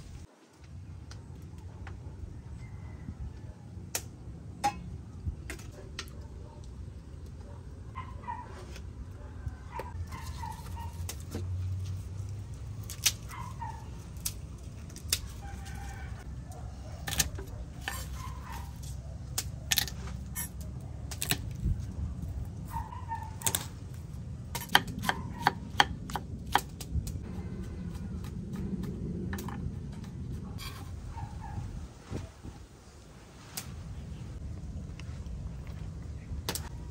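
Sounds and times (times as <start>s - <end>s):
knife chopping on wooden block: 24.6s - 26.7s.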